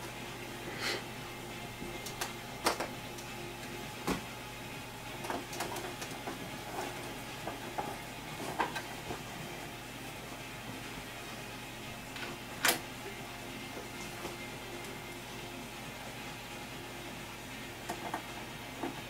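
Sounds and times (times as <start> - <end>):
low steady hum: 0.0 - 19.0
clicks and knocks of handling: 2.0 - 3.3, 5.2 - 9.2.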